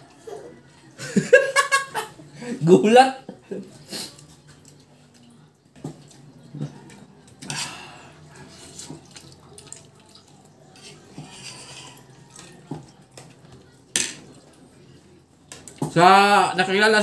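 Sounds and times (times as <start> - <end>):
wet chewing and slurping: 5.9 - 13.5.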